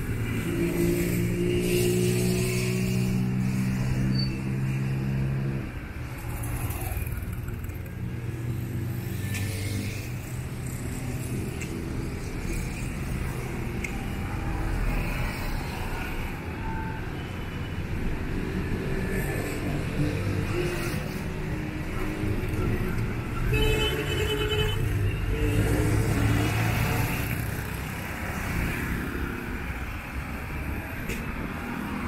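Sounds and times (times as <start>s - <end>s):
cars and motorcycles driving past: 0.0s - 16.5s, 24.8s - 32.0s.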